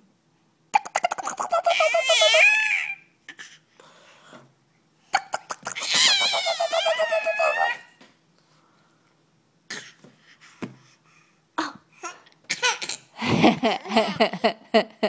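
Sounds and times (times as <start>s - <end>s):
baby laughing: 0.8s - 3.0s, 5.2s - 8.0s, 12.0s - 14.6s.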